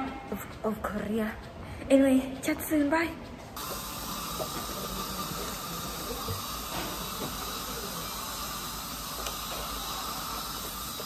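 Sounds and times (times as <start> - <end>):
steady hiss: 3.6 - 11.0.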